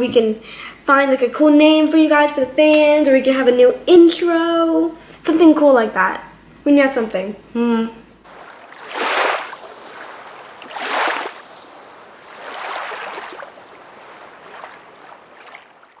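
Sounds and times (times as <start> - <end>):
steady hiss: 8.3 - 15.6.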